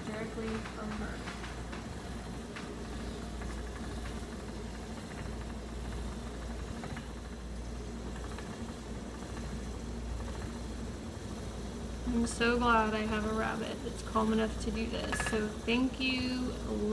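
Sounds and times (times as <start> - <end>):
spinning wheel whirring: 0.0 - 16.9.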